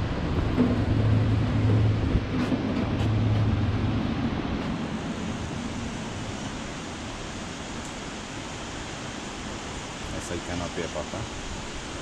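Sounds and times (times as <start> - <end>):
cable car motor hum: 0.0 - 8.4
falling water: 0.0 - 12.0
wind: 0.0 - 12.0.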